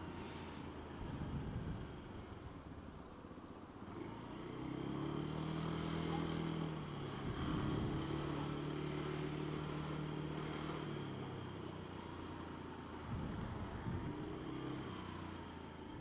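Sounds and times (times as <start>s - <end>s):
scooter engine running: 4.3s - 16.0s.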